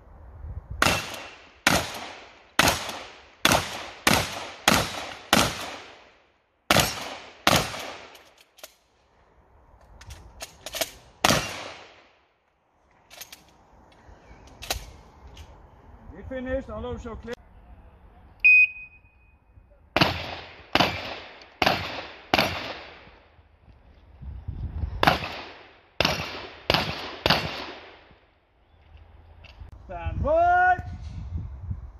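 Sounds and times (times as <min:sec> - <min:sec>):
shotgun shots: 0:00.8 - 0:06.1, 0:06.7 - 0:08.2, 0:11.2 - 0:12.1, 0:20.0 - 0:23.1, 0:25.0 - 0:28.1.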